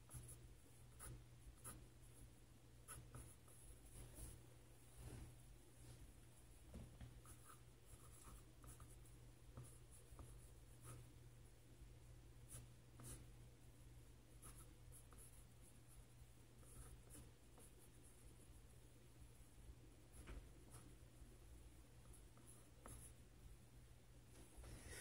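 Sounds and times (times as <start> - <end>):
pencil scratching on paper: 0.0 - 4.4, 7.2 - 11.1, 12.5 - 13.3, 14.4 - 16.0, 16.6 - 18.4, 22.0 - 23.2
low steady hum: 0.0 - 25.0.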